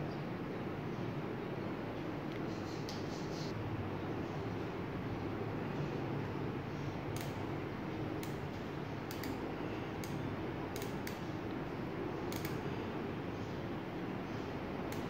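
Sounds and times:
steady background hum: 0:00.0 - 0:15.0
soldering gun clicks: 0:09.1 - 0:09.4, 0:12.3 - 0:12.6.

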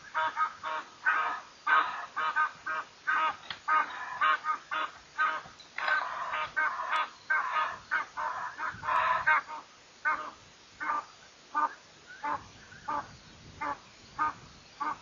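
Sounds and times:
geese honking: 0:00.0 - 0:11.0.

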